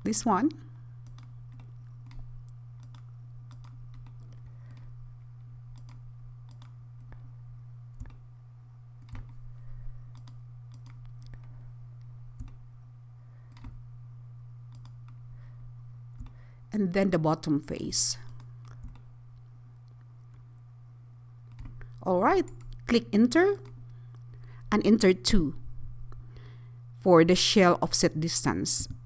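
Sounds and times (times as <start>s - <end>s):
steady low hum: 0.0s - 29.0s
computer mouse clicks: 1.0s - 4.9s, 5.7s - 7.2s, 8.0s - 8.2s, 9.0s - 9.4s, 10.1s - 11.5s, 12.4s - 12.6s, 13.5s - 13.8s, 14.7s - 15.2s, 18.3s - 19.1s.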